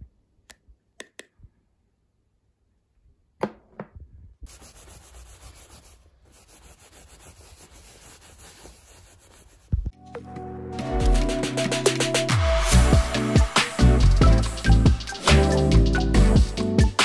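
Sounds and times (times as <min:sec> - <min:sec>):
tissue scrubbing fabric blanket: 0:04.5 - 0:09.8.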